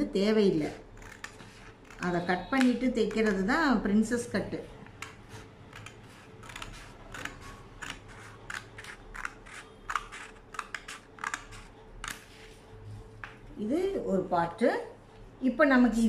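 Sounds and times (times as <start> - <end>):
scissors snipping paper: 4.9 - 12.3.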